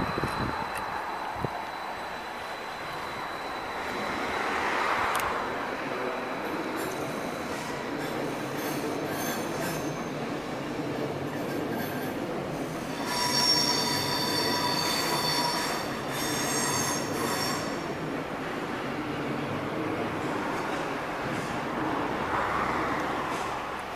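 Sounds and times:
train wheels squealing: 0:00.0 - 0:18.3
train rolling rumble: 0:00.0 - 0:23.9.

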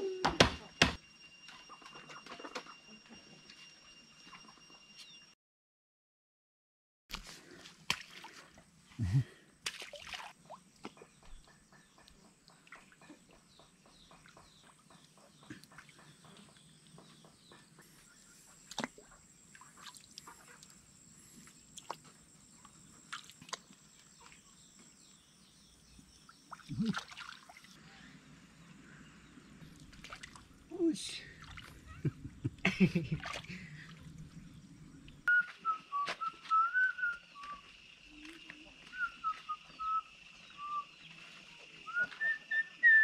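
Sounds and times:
muddy water splashing and dripping: 0:07.1 - 0:13.4, 0:18.6 - 0:20.8, 0:21.7 - 0:24.5, 0:26.3 - 0:27.8, 0:29.7 - 0:30.6, 0:31.2 - 0:32.0, 0:32.8 - 0:34.2.

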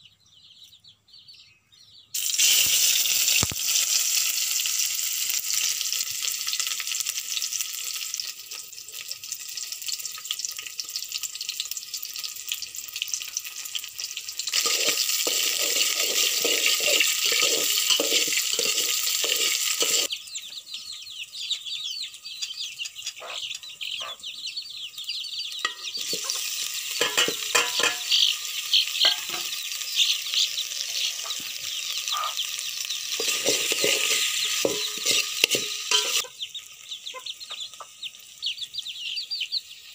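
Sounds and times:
fish and onions sizzling in oil: 0:02.2 - 0:20.2, 0:24.9 - 0:39.9
spoon scraping a pot: 0:14.5 - 0:20.1, 0:25.6 - 0:28.3, 0:29.0 - 0:29.5, 0:33.1 - 0:36.3.

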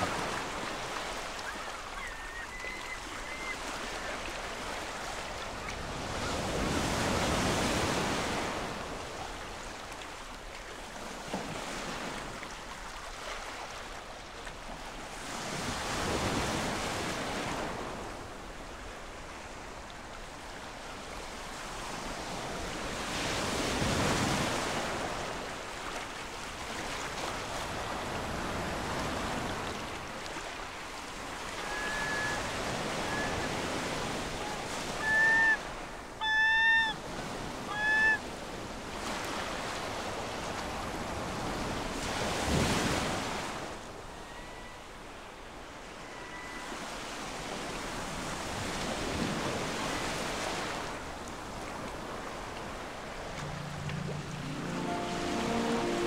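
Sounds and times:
lake waves washing on shore: 0:00.0 - 0:44.2, 0:46.7 - 0:56.0
geese honking: 0:36.2 - 0:37.0.

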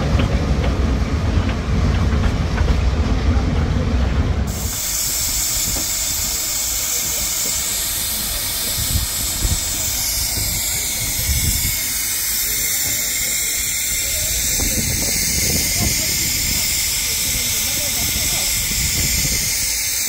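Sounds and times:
steam train rumble: 0:00.0 - 0:20.0
loud hiss of escaping steam: 0:04.5 - 0:20.0.

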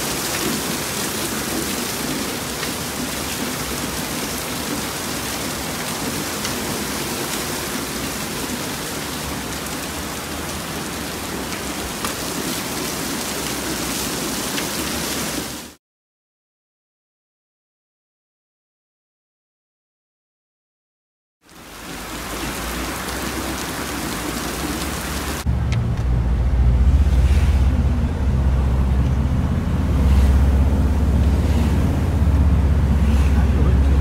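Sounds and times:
heavy rain pouring: 0:00.0 - 0:15.8, 0:21.4 - 0:34.0
raindrop taps: 0:11.4 - 0:12.5.

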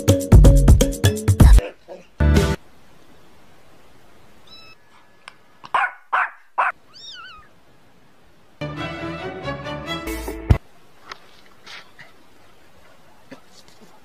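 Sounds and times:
music with a bass line: 0:00.0 - 0:01.6, 0:02.2 - 0:02.6
kitten mewing: 0:04.5 - 0:04.8, 0:05.8 - 0:07.5.

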